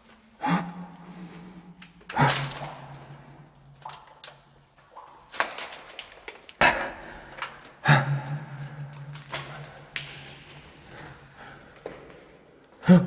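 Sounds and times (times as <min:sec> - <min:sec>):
footsteps on concrete floor: 0:08.6 - 0:12.4.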